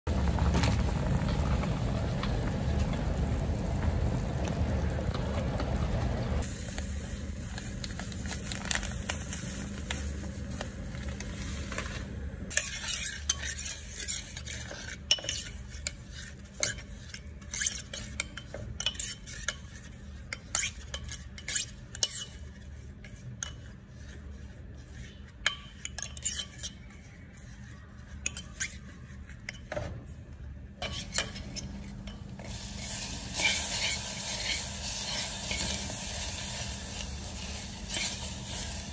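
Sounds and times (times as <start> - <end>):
broth bubbling in clay pot: 0.1 - 8.0
sugar sizzling: 0.1 - 11.8, 30.9 - 38.9
metal ladle scraping clay pot: 30.8 - 38.9.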